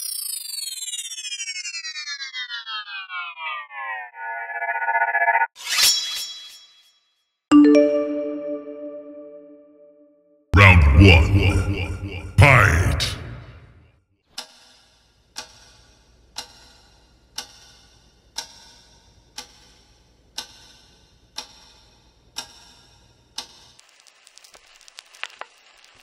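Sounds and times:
clock ticking: 0:16.3 - 0:18.7, 0:19.3 - 0:21.8
vinyl record crackle and pops: 0:23.4 - 0:26.0.

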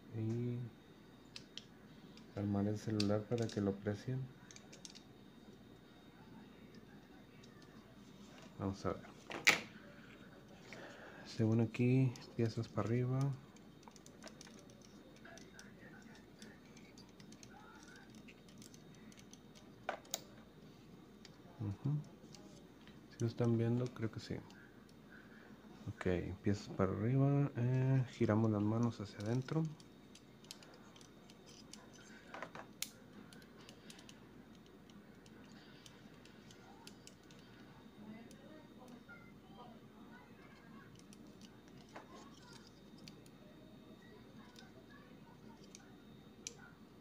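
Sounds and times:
plastic toy parts clicking: 0:02.9 - 0:03.6, 0:04.5 - 0:05.0, 0:12.8 - 0:20.2, 0:29.2 - 0:37.4, 0:40.9 - 0:43.3.

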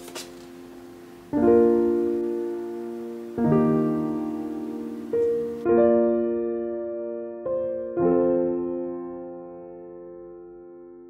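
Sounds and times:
slow piano chords: 0:00.0 - 0:11.0.

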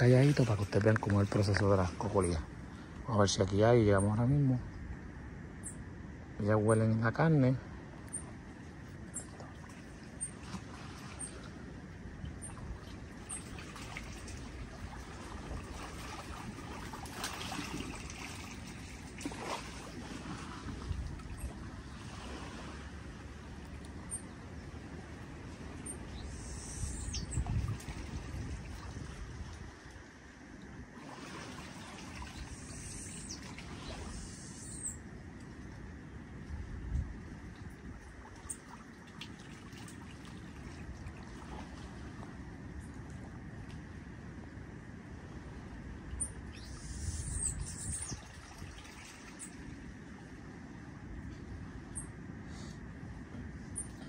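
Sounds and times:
wind rumble on microphone: 0:00.0 - 0:54.0
bird chirps: 0:25.8 - 0:27.5, 0:32.4 - 0:33.5, 0:34.1 - 0:35.0, 0:46.2 - 0:48.2.

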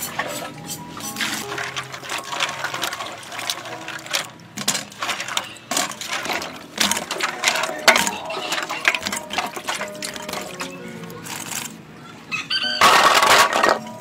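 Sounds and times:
wet fruit pieces clacking: 0:00.0 - 0:11.8
water splashing in a bowl: 0:01.2 - 0:10.7.

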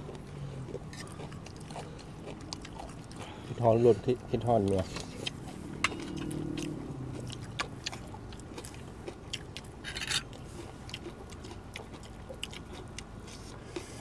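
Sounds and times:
person chewing food: 0:00.0 - 0:14.0.

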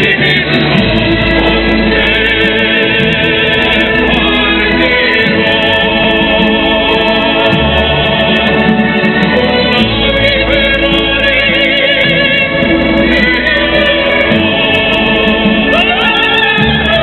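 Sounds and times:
deep bass notes: 0:00.0 - 0:17.0
vibrato singing voice: 0:00.0 - 0:17.0.

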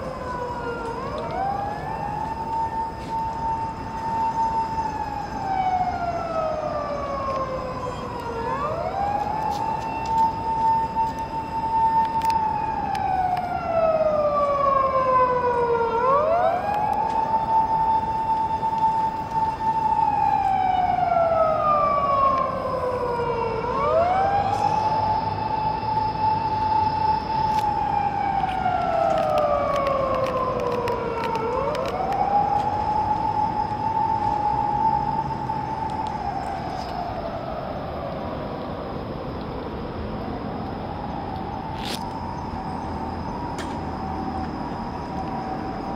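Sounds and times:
ambulance siren: 0:00.0 - 0:45.9.

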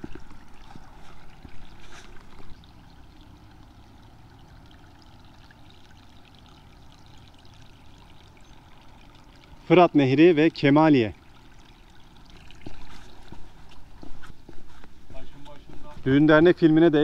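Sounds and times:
faint water trickling: 0:00.0 - 0:17.0.

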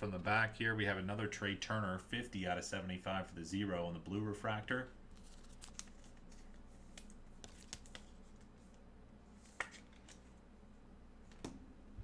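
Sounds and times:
cards clicking and rustling: 0:05.1 - 0:08.8, 0:09.4 - 0:10.3.

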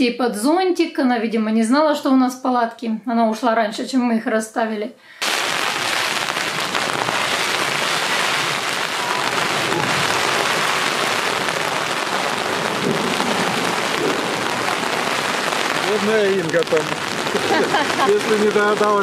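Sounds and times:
rain falling: 0:05.2 - 0:19.0
waves breaking on shore: 0:05.2 - 0:19.0.

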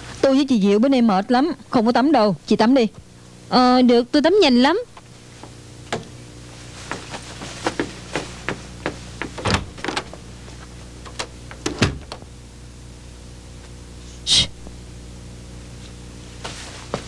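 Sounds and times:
steady low hum: 0:00.0 - 0:17.0
light knocks and clicks of door: 0:09.2 - 0:10.2.

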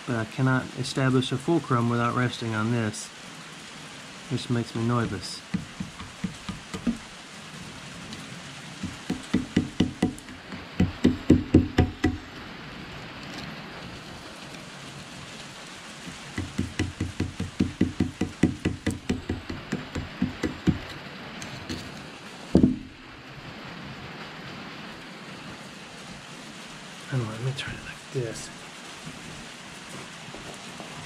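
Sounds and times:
loud knock: 0:05.5 - 0:07.0, 0:08.8 - 0:12.2, 0:16.4 - 0:20.9, 0:22.6 - 0:23.0
hand pick scraping rust: 0:16.1 - 0:22.0.

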